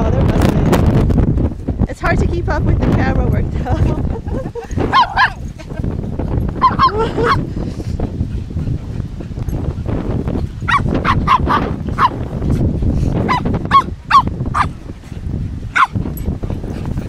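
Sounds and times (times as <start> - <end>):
dogs barking: 4.8 - 5.5, 6.5 - 7.5, 10.6 - 12.3, 13.2 - 14.8, 15.7 - 16.0.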